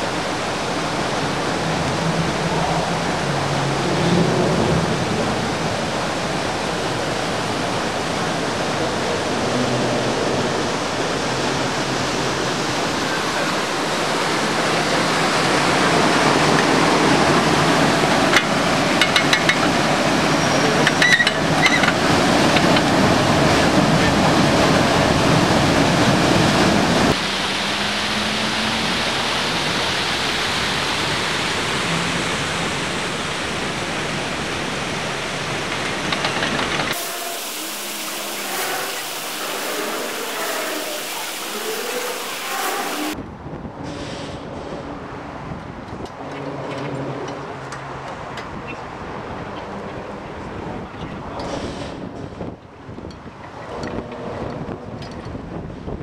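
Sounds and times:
water rushing through sluice valves: 0.0s - 43.2s.

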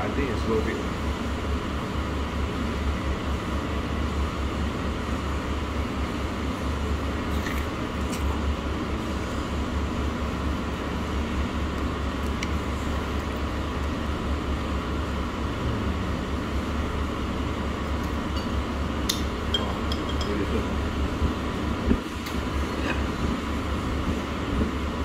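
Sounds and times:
restaurant room noise: 0.0s - 25.0s
tableware clinking: 18.3s - 18.6s, 19.5s - 20.4s.

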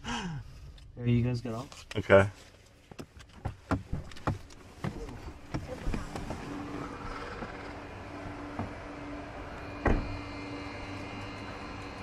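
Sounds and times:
car door shutting: 9.7s - 10.3s.

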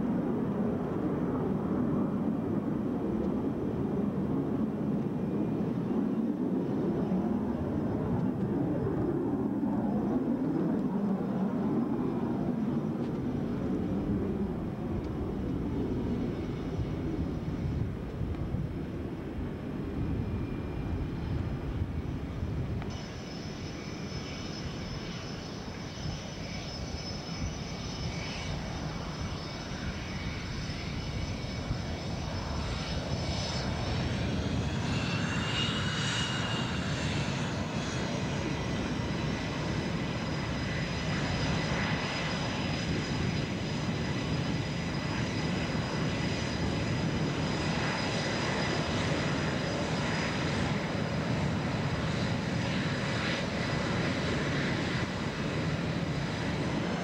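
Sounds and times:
jet engine rumble: 0.0s - 57.0s
high-pitched turbine whine: 5.1s - 57.0s.

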